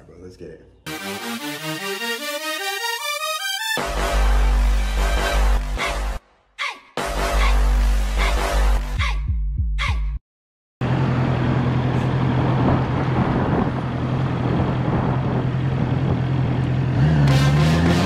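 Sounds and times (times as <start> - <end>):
motorcycle engine idling and revving: 10.8 - 18.0.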